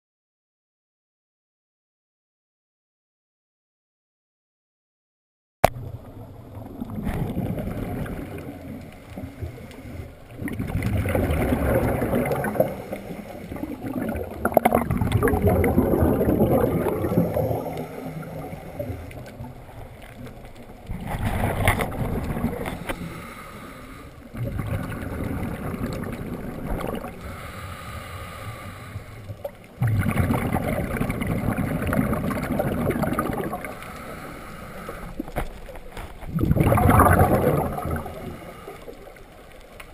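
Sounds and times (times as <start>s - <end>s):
gurgling bubbles exhale: 5.7s - 39.9s
regulator inhales: 17.7s - 19.2s, 22.6s - 24.3s, 27.2s - 29.4s, 33.7s - 35.3s, 38.1s - 39.1s.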